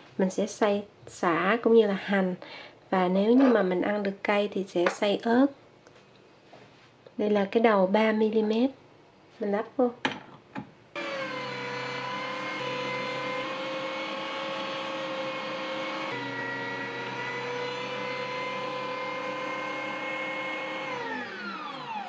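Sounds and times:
electric meat grinder humming: 0:11.0 - 0:22.0.

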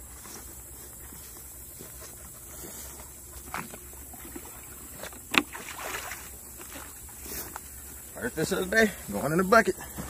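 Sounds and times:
water splashing and sloshing: 0:01.8 - 0:09.0.

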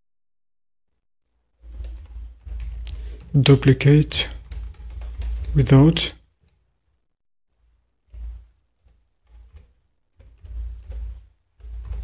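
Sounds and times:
keyboard typing: 0:01.6 - 0:06.6, 0:08.0 - 0:12.0.

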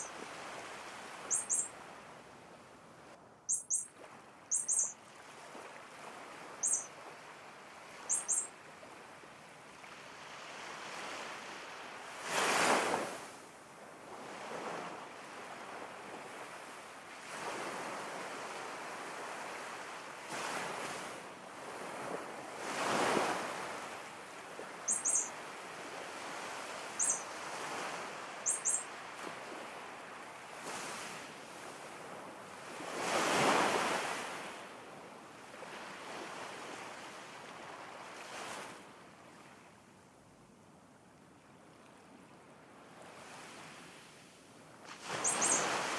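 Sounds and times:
ocean waves washing: 0:00.0 - 0:02.4, 0:21.8 - 0:34.6, 0:44.9 - 0:45.9
short high bird chirps: 0:01.2 - 0:01.7, 0:03.5 - 0:03.9, 0:04.5 - 0:05.0, 0:06.6 - 0:06.9, 0:08.1 - 0:08.5, 0:24.9 - 0:25.3, 0:27.0 - 0:27.3, 0:28.4 - 0:28.9, 0:45.0 - 0:45.9.

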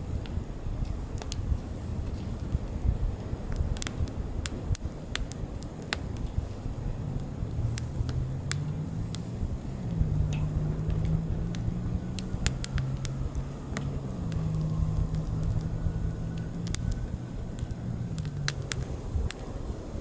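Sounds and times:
firewood crackling and popping: 0:00.0 - 0:20.0
steady low drone: 0:05.4 - 0:20.0.

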